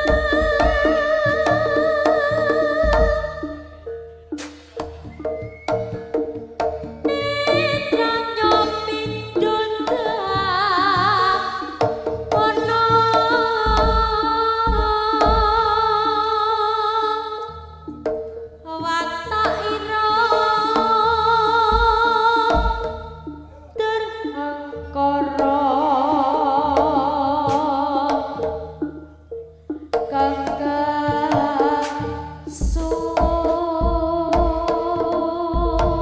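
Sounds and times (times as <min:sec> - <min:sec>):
drum strokes: 0:00.0 - 0:16.4, 0:17.9 - 0:36.0.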